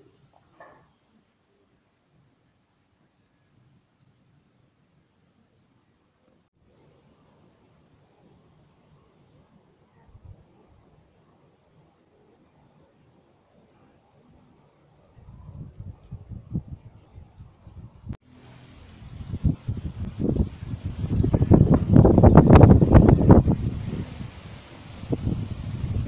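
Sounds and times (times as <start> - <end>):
high insect chirp: 6.6 - 18.2
insects trilling: 6.6 - 18.2
low rumbling: 18.4 - 24.4.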